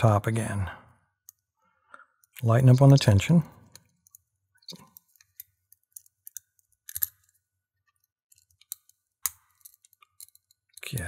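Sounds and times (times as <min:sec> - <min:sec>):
lock pick clicking in padlock: 0:05.4 - 0:07.3.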